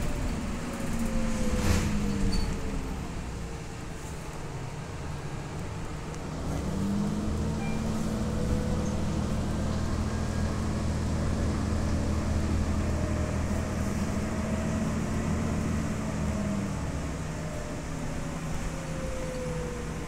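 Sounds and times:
bus engine drone: 0.0 - 20.0
road noise: 0.0 - 20.0.

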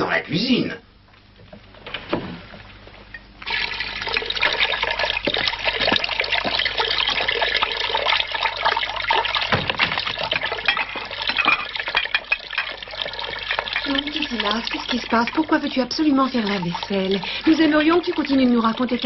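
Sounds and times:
water splashing in a basin: 3.4 - 19.0
crockery clinking: 10.4 - 12.9.

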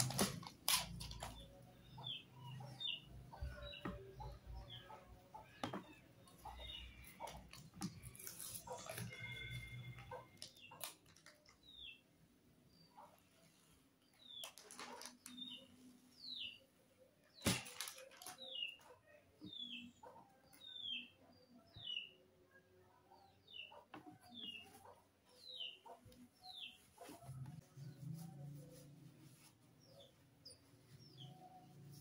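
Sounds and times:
packaging crinkling: 0.0 - 1.3, 14.4 - 15.4.

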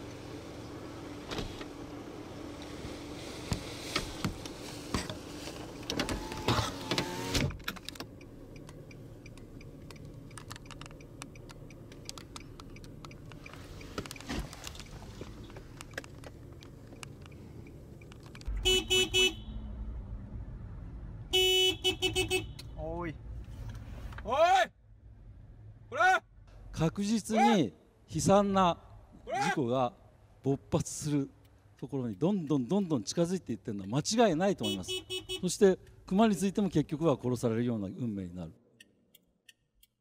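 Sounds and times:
low vehicle rumble: 0.0 - 21.4
car horn short stuttering blasts: 18.5 - 19.7, 21.3 - 22.6, 34.6 - 35.5.

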